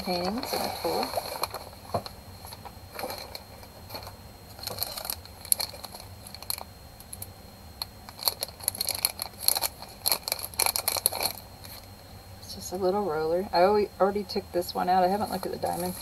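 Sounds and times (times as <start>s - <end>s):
packaging crinkling: 0.1s - 7.3s, 8.1s - 11.9s.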